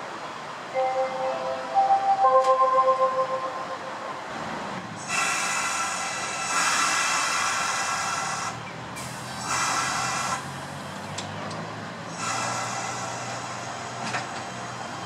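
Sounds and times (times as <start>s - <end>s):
electronic chime: 0.8s - 4.3s.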